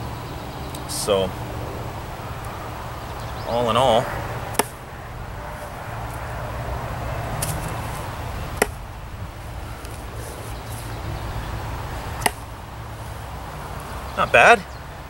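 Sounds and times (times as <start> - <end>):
knife chopping into wood: 4.6 - 4.8, 8.6 - 8.8, 12.2 - 12.4.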